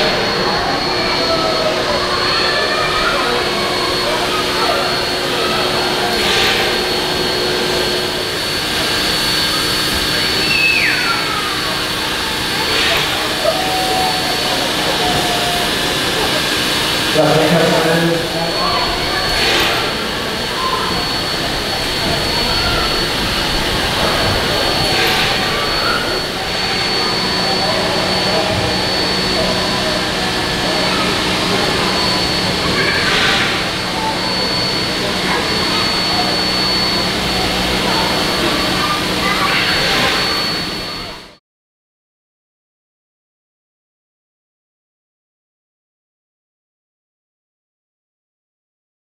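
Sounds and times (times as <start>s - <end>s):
steam locomotive hissing: 0.0s - 41.2s
thin high tone: 0.0s - 41.4s.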